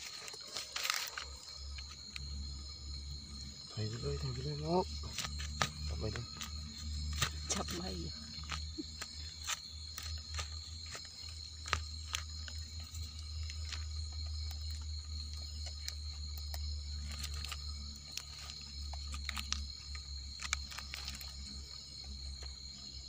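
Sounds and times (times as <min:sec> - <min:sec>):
clicks and rustles of digging: 0:00.0 - 0:02.3, 0:05.0 - 0:22.7
night insects chorus: 0:00.0 - 0:23.0.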